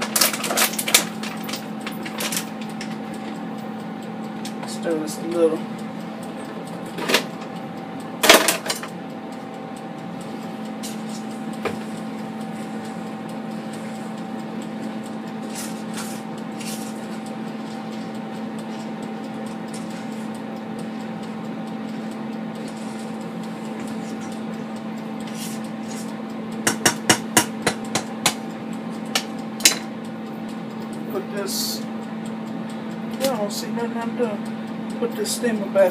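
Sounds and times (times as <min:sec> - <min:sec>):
air fryer fan humming: 0:00.0 - 0:35.9
wooden spoon knocking on metal pot: 0:26.7 - 0:28.4.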